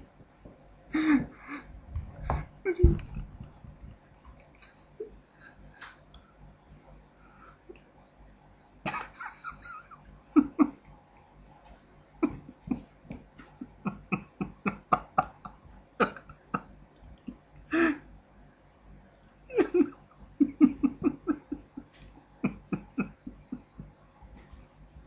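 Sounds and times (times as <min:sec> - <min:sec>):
person stifled laughter: 0:01.0 - 0:01.7, 0:02.7 - 0:03.2, 0:08.9 - 0:10.8, 0:12.2 - 0:18.0, 0:19.5 - 0:24.0.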